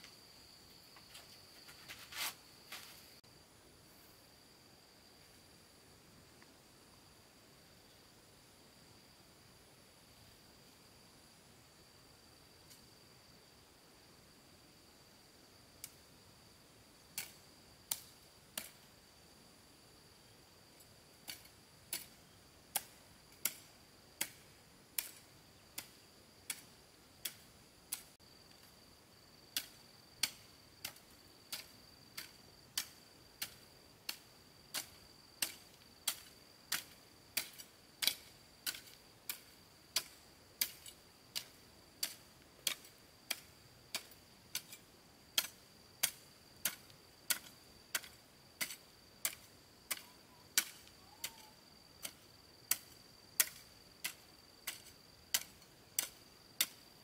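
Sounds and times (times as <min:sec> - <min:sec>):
hoe striking ground: 0:17.1 - 0:18.9, 0:21.2 - 0:28.7, 0:29.6 - 0:56.8.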